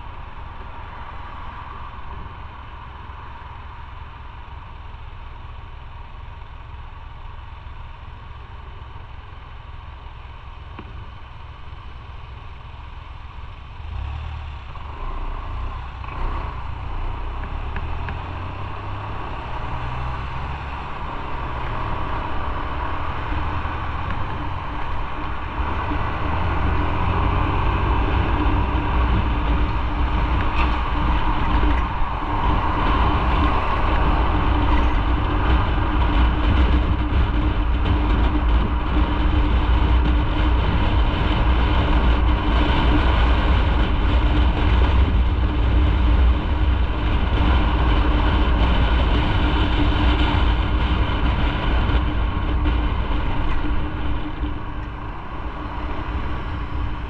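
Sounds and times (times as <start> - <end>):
motorcycle engine: 0.0 - 57.0
wind rumble on microphone: 13.8 - 57.0.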